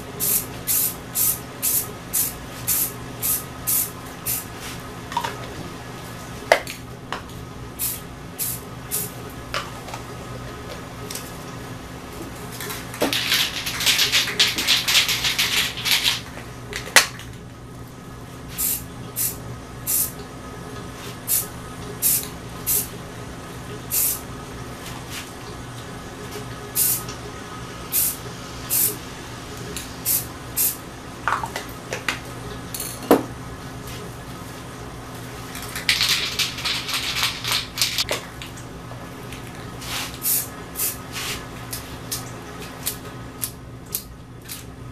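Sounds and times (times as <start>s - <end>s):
spray paint can hissing: 0.2s - 4.5s, 7.8s - 9.1s, 13.2s - 16.2s, 18.6s - 20.1s, 21.3s - 22.9s, 23.9s - 24.2s, 26.8s - 27.0s, 27.9s - 29.0s, 30.0s - 30.8s, 35.9s - 38.0s, 39.9s - 41.0s.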